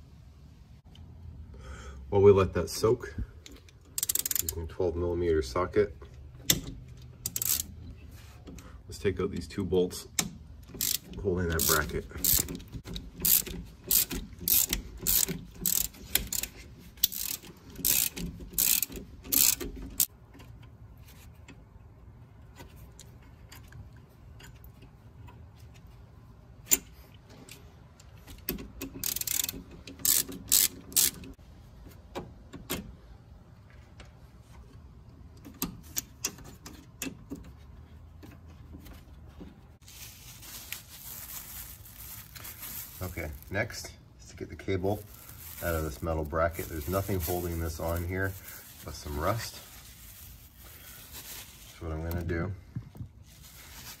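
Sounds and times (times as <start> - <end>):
socket ratchet clicking: 3.5 - 4.6, 6.5 - 7.7, 10.2 - 20.1, 28.2 - 31.4.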